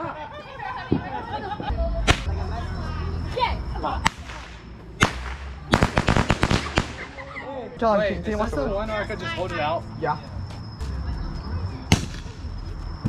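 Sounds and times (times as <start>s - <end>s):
rapid firecracker cracks: 2.1s - 2.3s, 4.0s - 7.2s
fireworks bangs: 4.0s - 7.3s.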